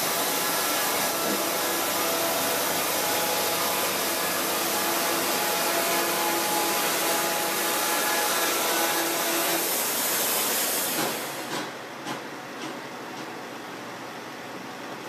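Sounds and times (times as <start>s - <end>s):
band sawmill cutting log: 0.0s - 11.7s.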